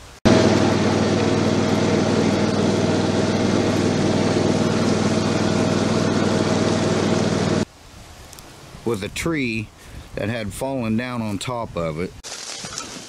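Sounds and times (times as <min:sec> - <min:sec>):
small engine humming: 0:00.3 - 0:07.6.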